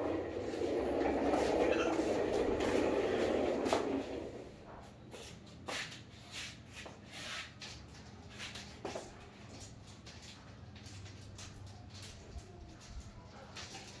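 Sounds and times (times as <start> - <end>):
toy car wheels rolling on tiles: 0.0 - 4.6.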